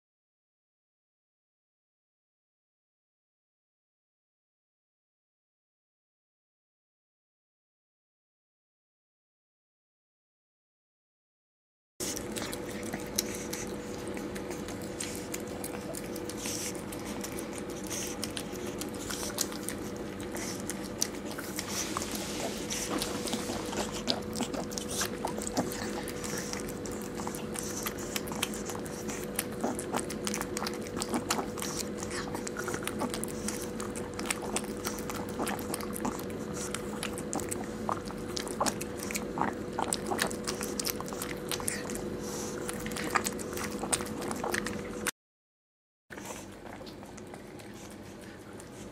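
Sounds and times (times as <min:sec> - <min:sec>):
dog licking and chewing toy: 0:12.0 - 0:45.1, 0:46.1 - 0:48.9.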